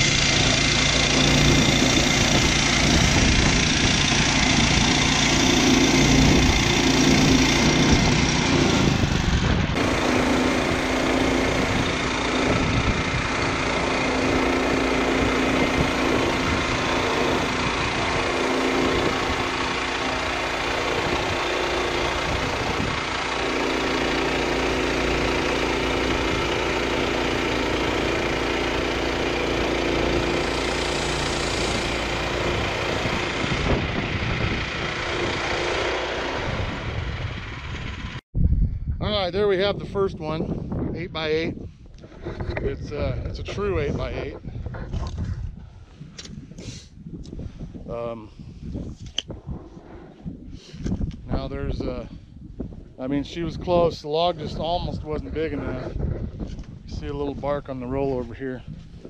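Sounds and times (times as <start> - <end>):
wind noise on microphone: 0.0 - 19.9, 20.7 - 23.4, 26.0 - 26.6, 31.4 - 59.0
bandsaw mill cutting log: 0.0 - 38.2.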